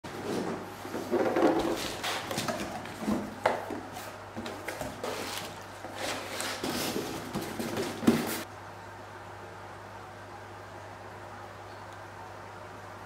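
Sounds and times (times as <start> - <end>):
cardboard flaps rustling: 0.1 - 8.5.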